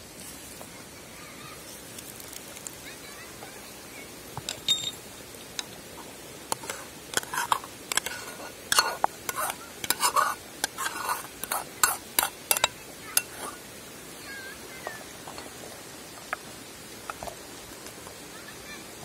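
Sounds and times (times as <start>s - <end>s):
metal ladle scraping a steel bowl: 6.5s - 13.6s.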